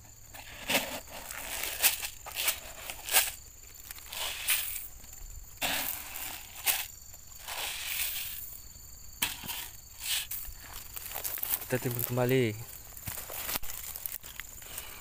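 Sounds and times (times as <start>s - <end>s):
faint insect drone: 0.0s - 15.0s
pellets pattering onto soil: 0.4s - 8.5s, 9.2s - 15.0s
leaf litter rustling: 9.2s - 15.0s.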